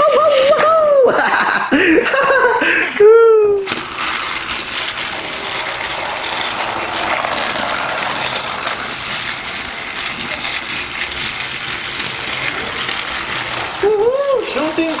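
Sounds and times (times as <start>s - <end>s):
toy train motor whirring: 3.5s - 15.0s.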